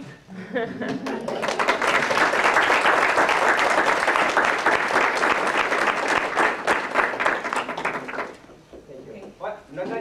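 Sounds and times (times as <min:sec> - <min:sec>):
audience applauding: 0:01.0 - 0:08.5.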